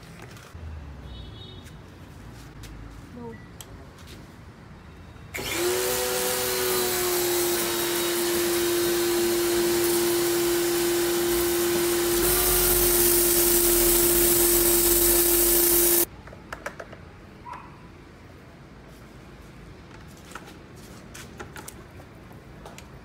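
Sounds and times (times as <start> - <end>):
pressure washer motor hum: 5.4 - 16.1
hissing water jet: 7.4 - 16.1.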